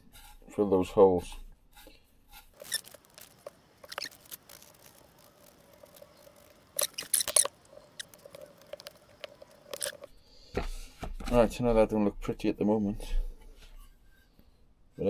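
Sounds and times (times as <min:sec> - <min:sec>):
scraping and clicking on wood: 0:01.8 - 0:10.1.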